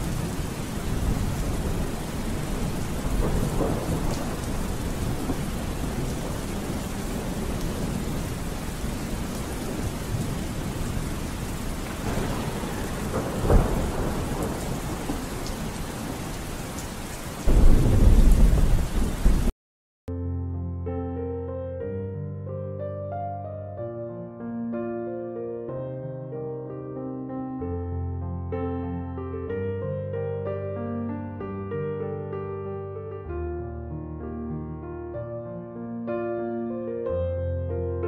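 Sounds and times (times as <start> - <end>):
low rolls of thunder: 0.0 - 19.5
steady rain: 0.0 - 19.5.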